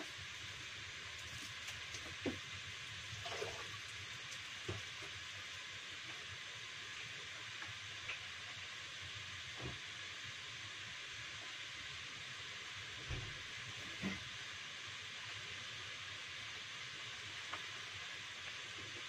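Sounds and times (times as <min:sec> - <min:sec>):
steady hiss: 0:00.0 - 0:19.0
items clattering at a sink: 0:03.2 - 0:03.8.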